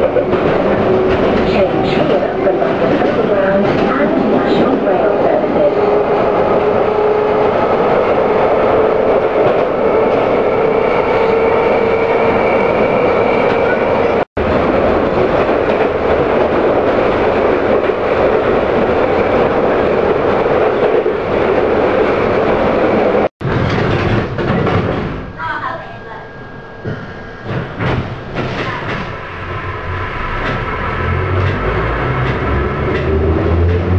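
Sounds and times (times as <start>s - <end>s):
train rumbling and rattling: 0.0s - 33.9s
train whine: 0.0s - 33.9s.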